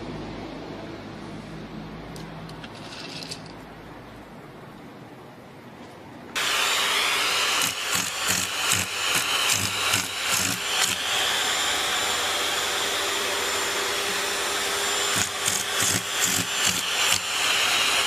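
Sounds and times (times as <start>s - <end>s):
small motor whining: 6.4s - 18.0s.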